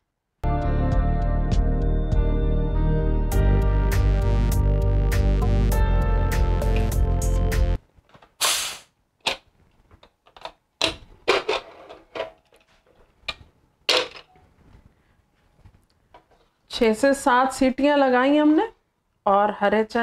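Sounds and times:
short hissing bursts: 8.4s - 9.0s.

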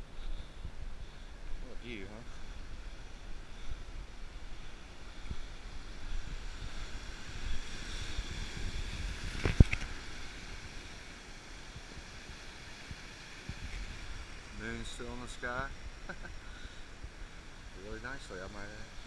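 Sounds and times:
wind buffeting microphone: 2.6s - 14.6s.

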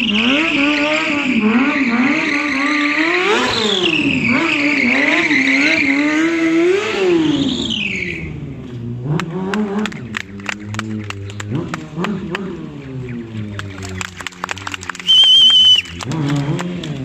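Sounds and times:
high tyre squeal on paving: 0.0s - 8.5s, 15.0s - 16.0s
motorcycle engine revving: 0.0s - 17.0s.

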